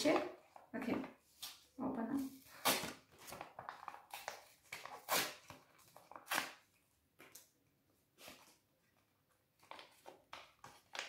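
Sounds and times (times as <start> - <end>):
packet rustling: 2.4 - 7.5
packet tearing: 2.5 - 6.6.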